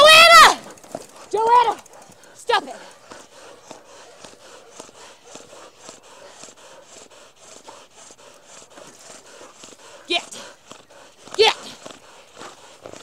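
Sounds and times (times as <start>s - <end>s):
claws clicking and scraping: 0.0s - 13.0s
dogs panting: 0.0s - 13.0s.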